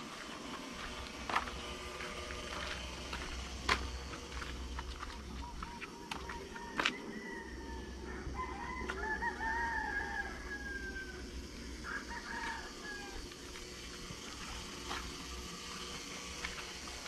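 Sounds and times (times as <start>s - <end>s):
rooster crowing: 6.0s - 13.4s.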